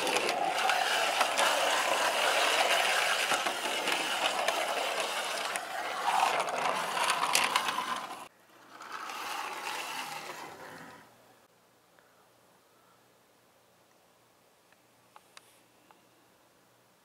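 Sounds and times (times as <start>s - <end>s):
toy wheels rattling on plastic: 0.0s - 10.9s.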